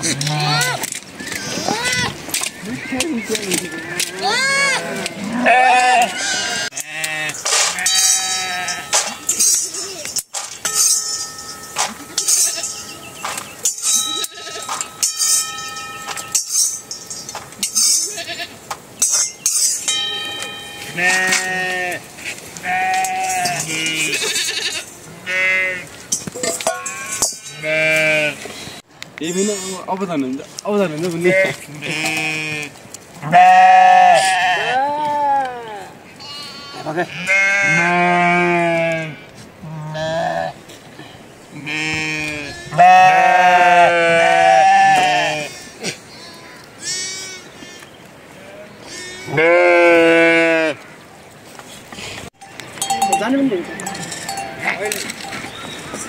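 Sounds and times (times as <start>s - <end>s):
sheep bleating: 3.6s - 9.0s, 17.8s - 18.6s, 20.9s - 22.0s, 22.6s - 25.9s, 27.5s - 28.4s, 31.2s - 40.6s, 41.6s - 50.9s
metal cookware clinking: 7.5s - 18.2s, 19.0s - 21.4s, 26.1s - 27.7s, 52.4s - 55.8s.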